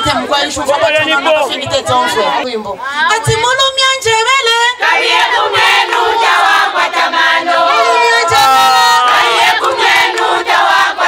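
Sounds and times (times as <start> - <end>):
group of women singing along: 4.7 - 11.0.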